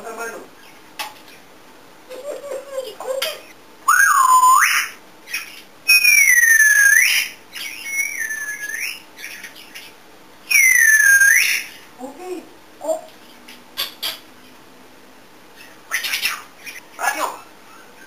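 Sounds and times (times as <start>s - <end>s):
parrot whistling: 3.4s - 9.3s, 10.5s - 11.8s.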